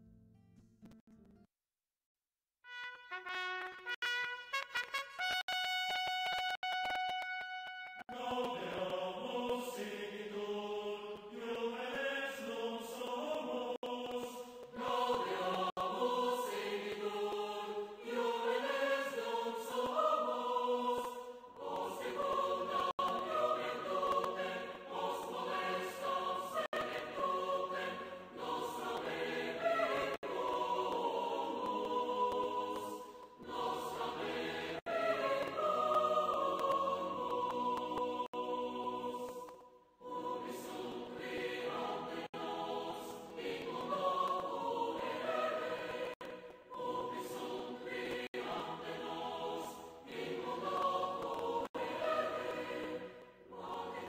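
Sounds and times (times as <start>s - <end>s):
brass jingle: 2.6s - 8.0s
choir singing: 8.0s - 54.0s.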